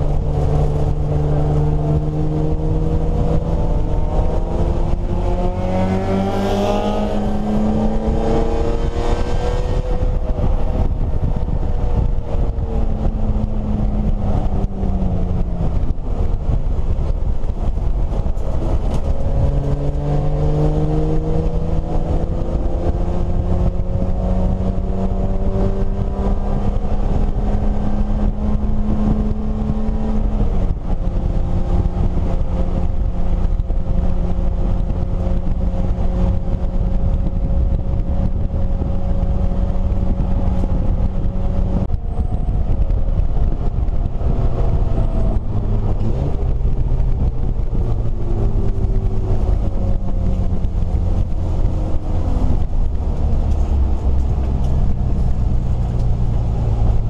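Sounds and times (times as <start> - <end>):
race car engine from cabin: 0.0 - 57.0
road and wind noise: 0.0 - 57.0.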